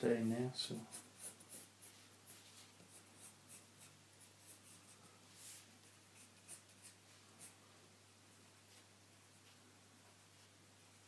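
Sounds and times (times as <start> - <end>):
pencil scratching on paper: 0.6 - 7.6.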